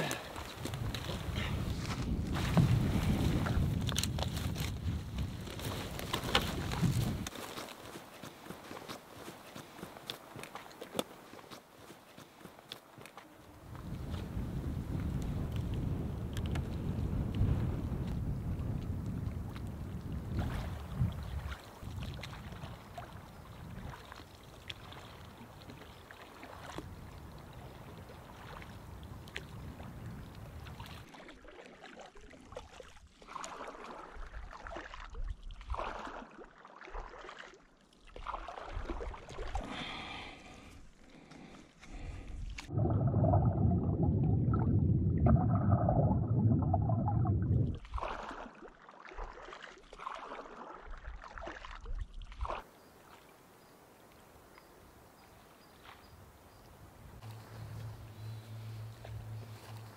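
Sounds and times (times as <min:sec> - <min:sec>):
water splashing around raft: 0:00.0 - 0:14.5, 0:19.4 - 0:44.0, 0:47.7 - 0:53.3
wind noise on microphone: 0:00.6 - 0:07.4, 0:13.5 - 0:24.2, 0:26.7 - 0:31.0, 0:41.9 - 0:48.2.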